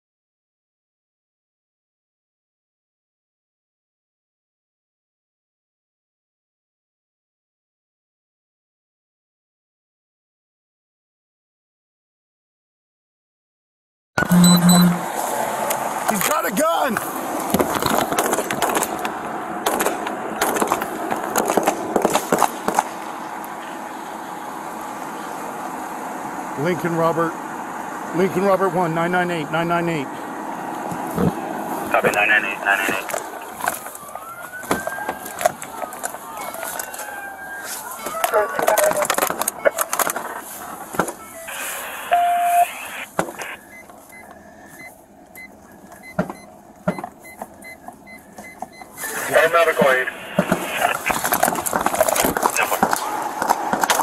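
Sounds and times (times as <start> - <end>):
electronic chime beeping: 14.2 - 15.1, 42.1 - 42.7
vehicle idling hum: 14.2 - 54.0.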